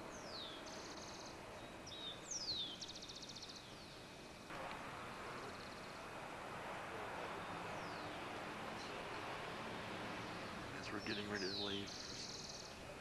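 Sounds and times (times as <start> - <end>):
songbird whistle and buzzy trill: 0.0 - 4.2, 7.2 - 12.8
faint steady hiss: 0.0 - 13.0.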